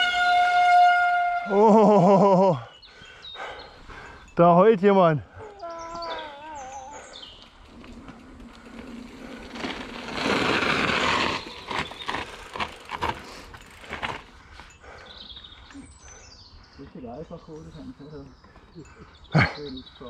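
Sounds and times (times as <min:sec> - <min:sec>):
dog howling: 0:05.5 - 0:07.2
bike tyres rolling on dirt: 0:05.9 - 0:16.0
bike knocking and rattling over bumps: 0:07.5 - 0:14.7.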